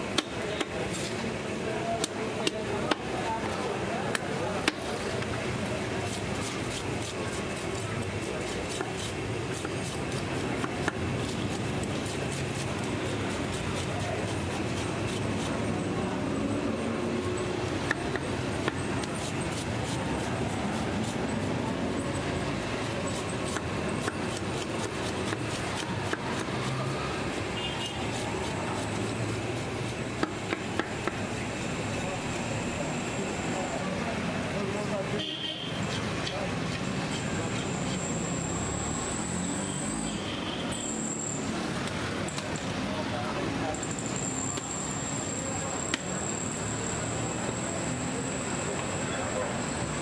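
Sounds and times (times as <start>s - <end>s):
street traffic: 0.0s - 50.0s
murmur of voices: 0.3s - 9.7s
knife scraping fish scales: 6.1s - 15.6s, 19.0s - 30.0s, 35.8s - 38.1s.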